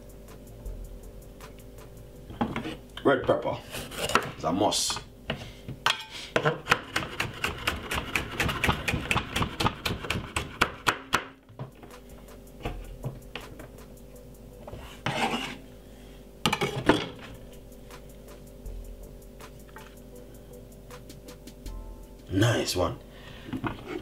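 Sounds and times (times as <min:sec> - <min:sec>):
knife scraping board: 0:03.6 - 0:04.4, 0:06.7 - 0:10.8, 0:14.7 - 0:15.6, 0:23.6 - 0:24.0.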